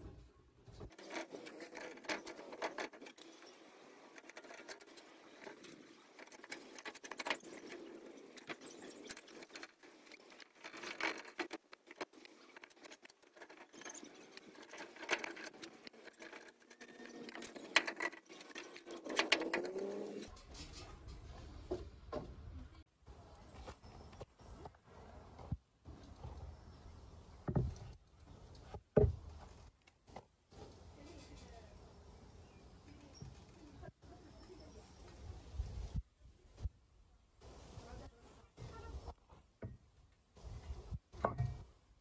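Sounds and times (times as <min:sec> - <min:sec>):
paintbrush scratching on metal: 0:00.9 - 0:20.3.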